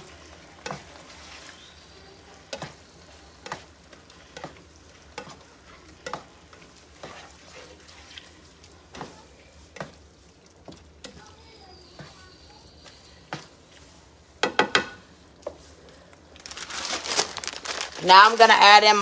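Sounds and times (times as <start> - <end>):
spatula scraping a skillet: 0.0 - 14.3
pan sizzling: 0.0 - 19.0.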